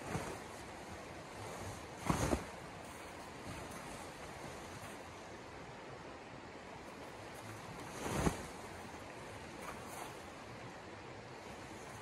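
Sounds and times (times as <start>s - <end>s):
tent fabric rustling: 0.0s - 5.2s, 7.7s - 8.9s
river running over rocks: 0.0s - 12.0s.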